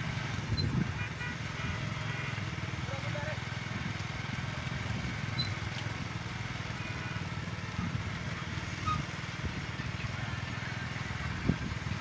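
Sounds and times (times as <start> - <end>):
motorcycle engine puttering: 0.0 - 12.0.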